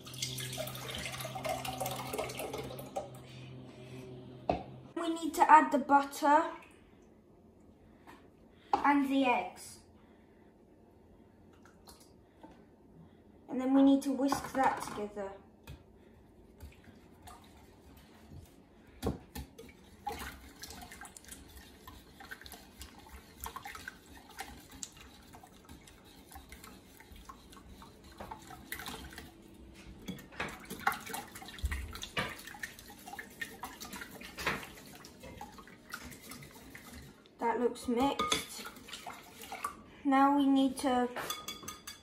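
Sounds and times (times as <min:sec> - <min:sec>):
whisk beating liquid in bowl: 0:16.5 - 0:18.6, 0:19.3 - 0:37.3, 0:37.9 - 0:39.8.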